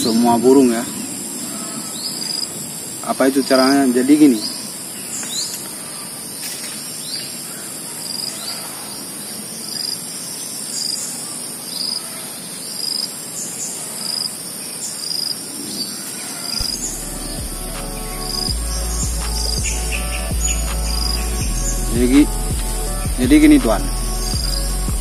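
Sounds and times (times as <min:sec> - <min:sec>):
insects calling high-pitched: 0:00.0 - 0:25.0
small birds chirping: 0:00.0 - 0:25.0
short high repeating note: 0:16.6 - 0:25.0.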